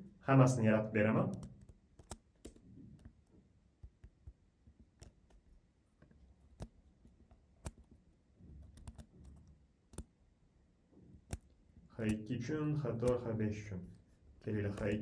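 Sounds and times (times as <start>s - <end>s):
computer keys clicking: 1.2s - 5.4s, 6.4s - 8.0s, 8.6s - 10.1s, 11.2s - 13.4s, 14.5s - 15.0s
mouse button clicks: 7.6s - 7.9s.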